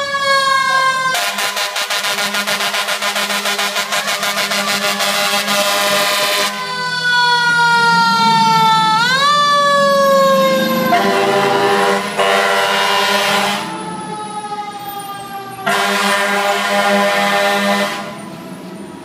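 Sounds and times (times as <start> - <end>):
mechanical siren wailing: 0.0 - 19.0
horn blasts: 1.2 - 6.7, 10.9 - 13.8, 15.6 - 18.2.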